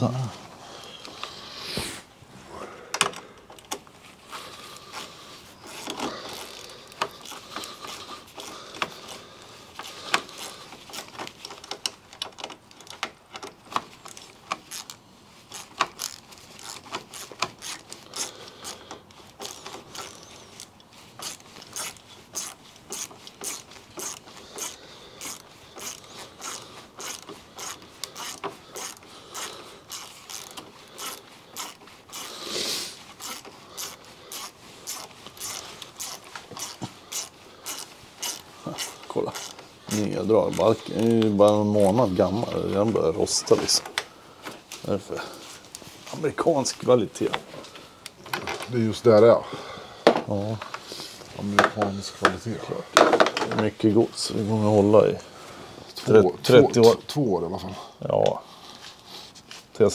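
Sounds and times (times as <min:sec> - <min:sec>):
ratchet wrench clicking: 0:10.1 - 0:32.4, 0:33.2 - 0:41.2.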